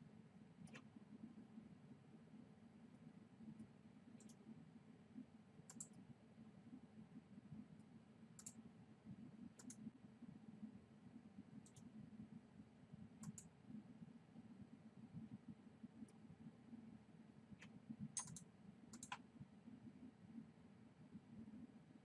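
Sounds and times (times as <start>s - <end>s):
steady low hum: 0.0s - 22.0s
computer mouse clicks: 0.6s - 0.9s, 3.6s - 4.4s, 5.7s - 6.0s, 8.4s - 8.6s, 9.6s - 9.8s, 11.6s - 11.9s, 13.2s - 13.5s, 17.6s - 19.3s.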